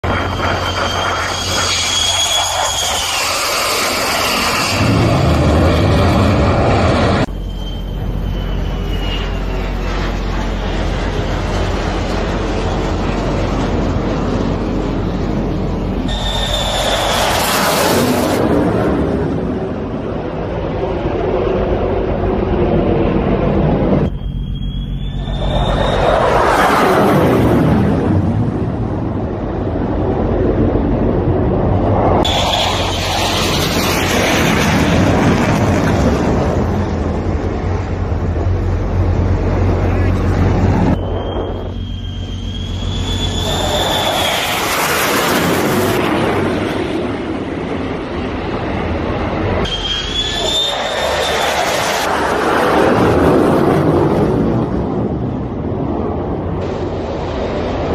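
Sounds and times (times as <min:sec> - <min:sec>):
thin high whine rising: 0:00.0 - 0:18.6, 0:20.7 - 0:28.8, 0:31.7 - 0:36.0, 0:36.6 - 0:53.0
jet engine roaring overhead: 0:00.0 - 0:57.9
low rumble: 0:04.6 - 0:49.6.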